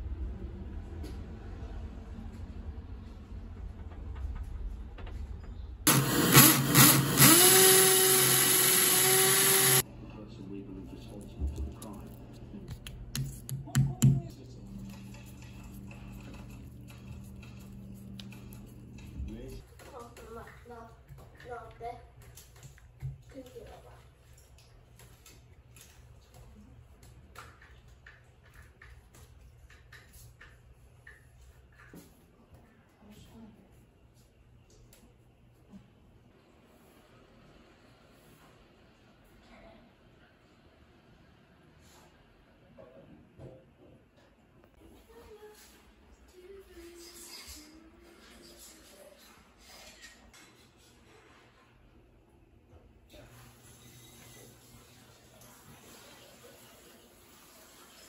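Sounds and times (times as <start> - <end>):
cordless drill whining: 5.9 - 9.8
vacuum cleaner: 5.9 - 9.8
low room hum: 9.4 - 58.0.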